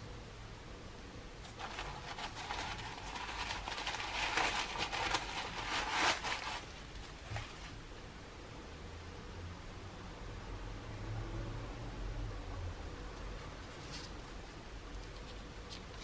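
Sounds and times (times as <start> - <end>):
tissue paper crinkling: 1.4 - 7.8.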